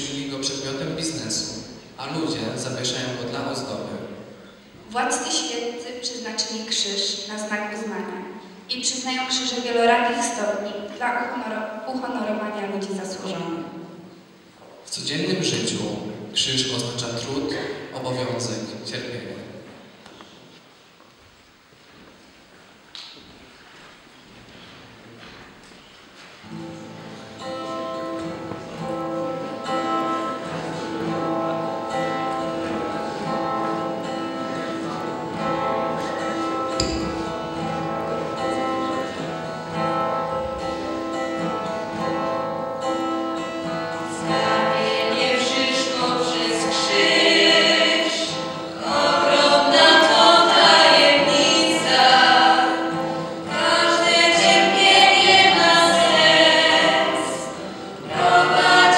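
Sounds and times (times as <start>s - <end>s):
sustained instrumental music: 26.5s - 50.8s
children singing: 44.1s - 58.9s.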